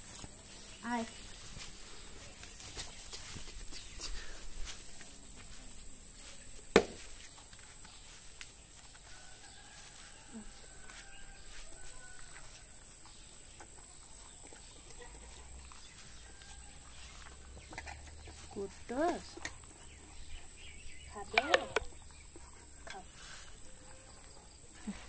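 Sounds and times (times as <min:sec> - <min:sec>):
dog eating: 0:12.5 - 0:23.2.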